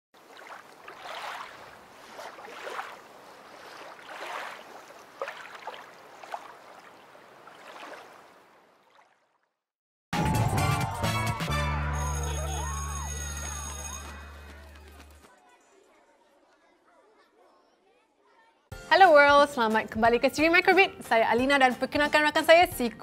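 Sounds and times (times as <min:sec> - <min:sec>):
water lapping and gurgling: 0:00.2 - 0:09.7
loud music jingle: 0:10.2 - 0:14.4.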